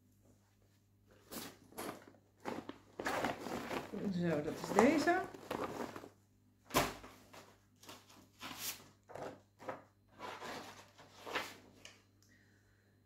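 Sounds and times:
fabric rustling and scraping: 0:00.6 - 0:06.2.

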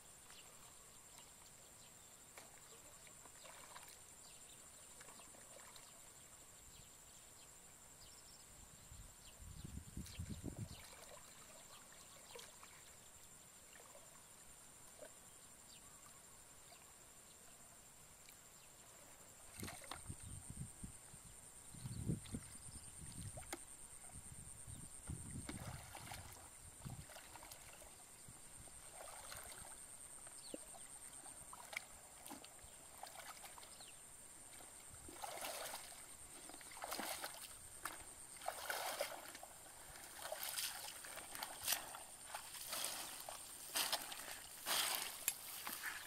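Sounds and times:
water sloshing from wading: 0:02.3 - 0:06.1, 0:10.0 - 0:13.1, 0:19.4 - 0:20.3, 0:25.0 - 0:46.0.

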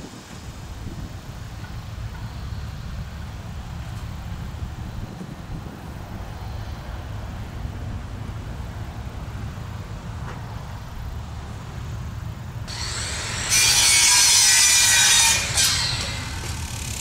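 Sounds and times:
power saw cutting wood siding: 0:12.7 - 0:17.0.

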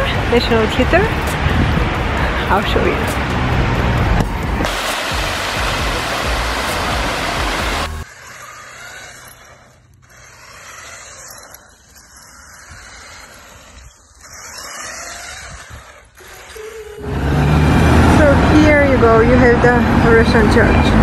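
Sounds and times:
tyres hissing on asphalt: 0:00.0 - 0:20.9
toy car electric motor whining: 0:04.0 - 0:17.2.

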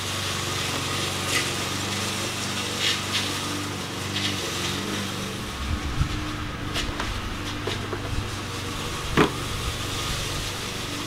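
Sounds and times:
faint rustles: 0:04.2 - 0:11.0
low motor hum: 0:04.4 - 0:11.0.

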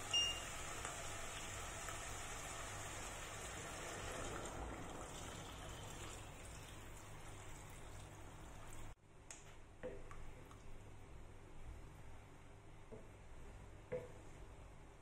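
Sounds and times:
water pouring into a pot: 0:00.0 - 0:09.0.

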